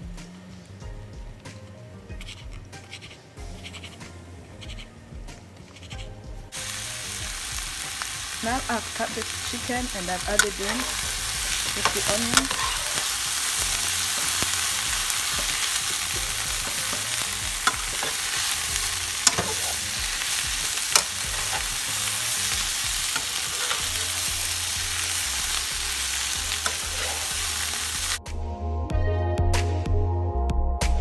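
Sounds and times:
food sizzling in a frying pan: 6.5s - 28.2s
utensil clicking against pan: 10.2s - 21.9s, 26.5s - 27.4s.

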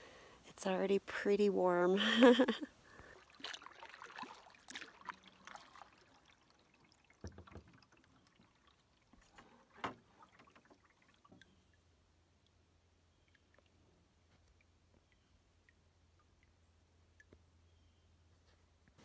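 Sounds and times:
paddle splashing in water: 2.9s - 11.7s.

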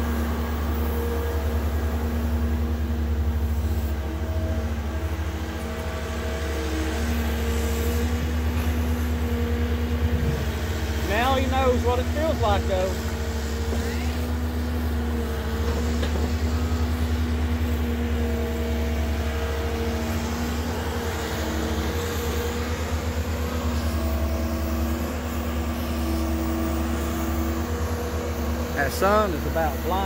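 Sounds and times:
excavator diesel engine: 0.0s - 30.0s.

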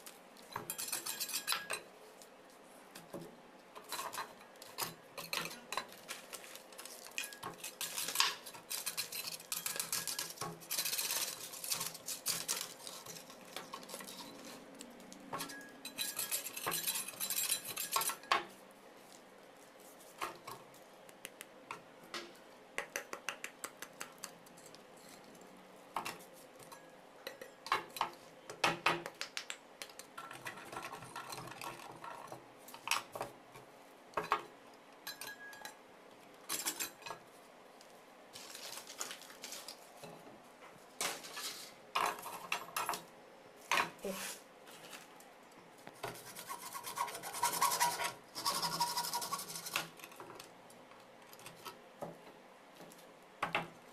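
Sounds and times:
rasping scrapes of cement: 46.1s - 49.9s.

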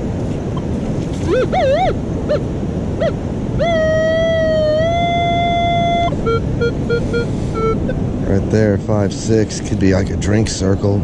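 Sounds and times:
wind: 0.0s - 11.0s
metal detector tones and beeps: 1.2s - 2.0s, 3.6s - 8.0s.

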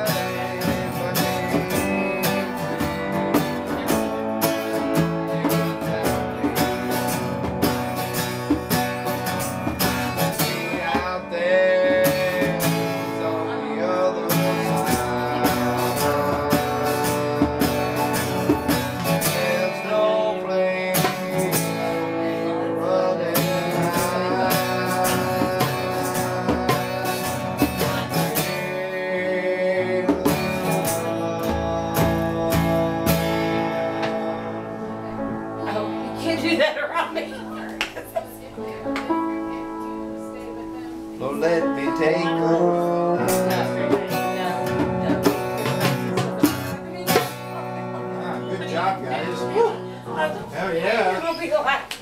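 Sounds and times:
man singing: 0.0s - 35.8s, 41.2s - 51.2s
acoustic guitar strumming: 0.0s - 51.9s.

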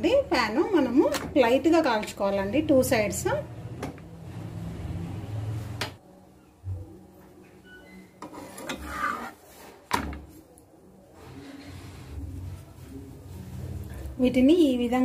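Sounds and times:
dough sheet scraping on pan: 8.2s - 9.9s.

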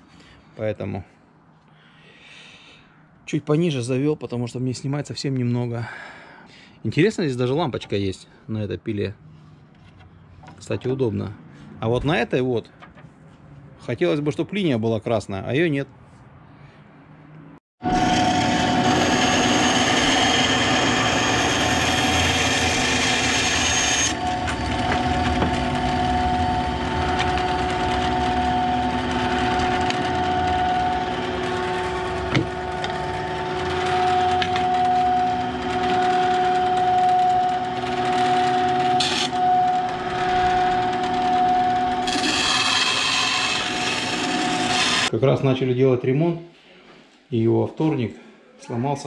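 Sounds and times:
band saw cutting wood: 17.8s - 45.1s.

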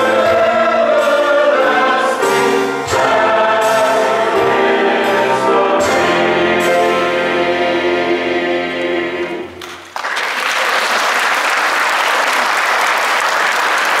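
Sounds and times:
choir singing final chord: 0.0s - 9.6s
audience applauding: 9.6s - 14.0s.

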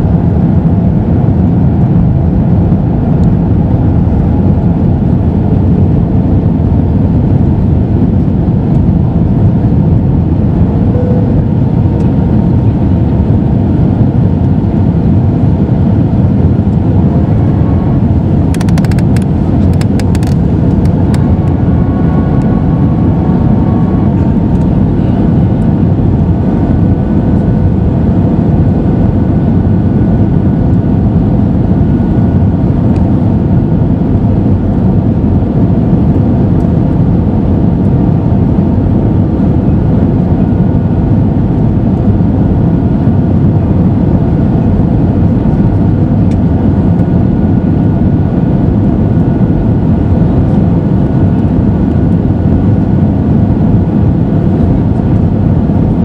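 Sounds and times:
airflow roar in aircraft cabin: 0.0s - 56.0s
jet engines: 0.0s - 56.0s
faint whining tones: 10.6s - 29.2s.

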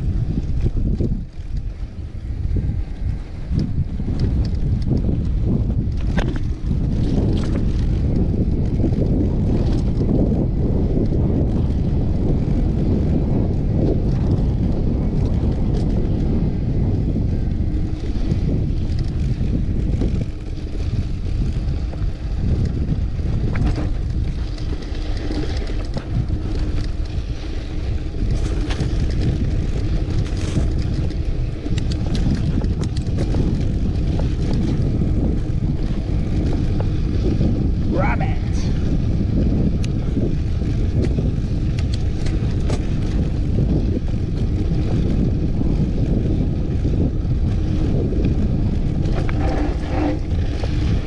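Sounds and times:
bike tyre and frame noise: 0.0s - 51.0s
wind rumble on microphone: 0.0s - 51.0s
sharp clicks and rattles: 23.4s - 37.2s, 38.8s - 51.0s.

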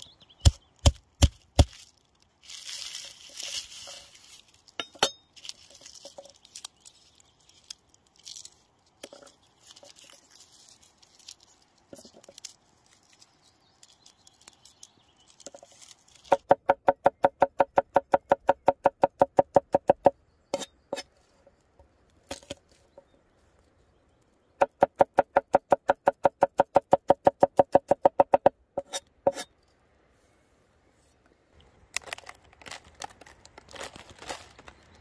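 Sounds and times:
knife chopping on wooden board: 16.3s - 20.7s, 24.6s - 29.4s.

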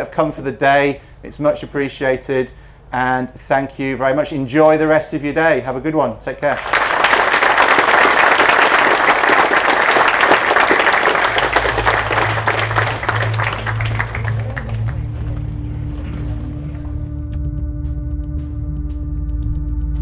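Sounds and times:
audience applauding: 6.5s - 16.9s
music with low bass line: 11.4s - 20.0s.

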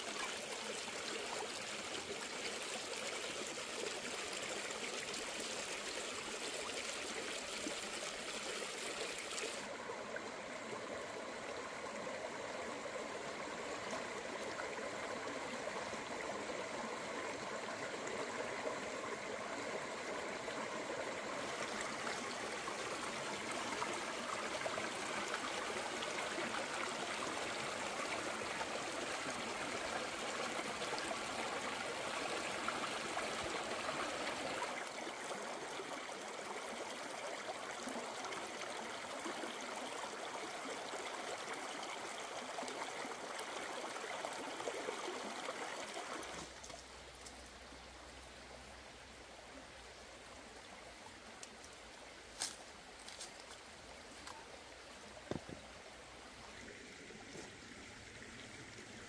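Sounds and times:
flowing water rushing: 0.0s - 49.7s, 50.6s - 59.0s.

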